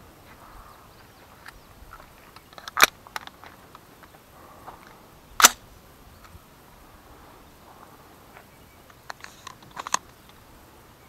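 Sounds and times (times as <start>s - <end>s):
suppressed gunshots: 5.4s - 5.6s.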